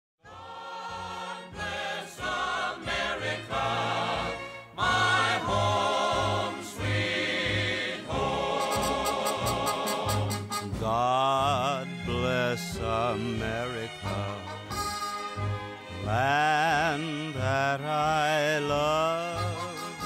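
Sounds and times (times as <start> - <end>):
choir singing with music: 0.2 - 20.0.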